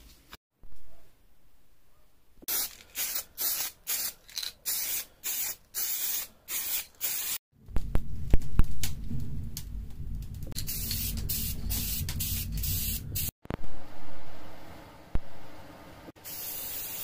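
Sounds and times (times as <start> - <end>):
aerosol can spraying: 2.5 - 7.4, 16.2 - 17.0.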